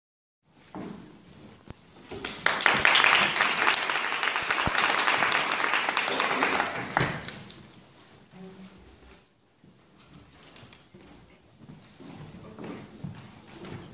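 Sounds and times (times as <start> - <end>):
audience applauding: 2.2 - 7.5.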